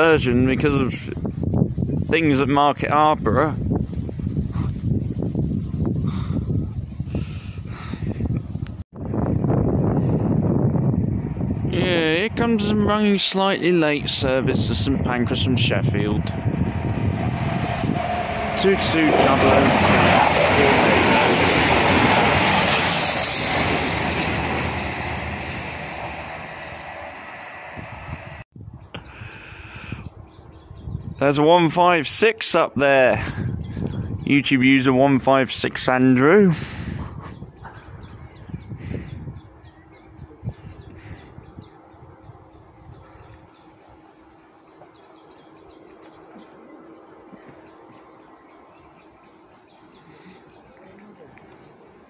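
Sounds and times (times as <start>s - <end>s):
diesel engines: 11.0s - 28.4s.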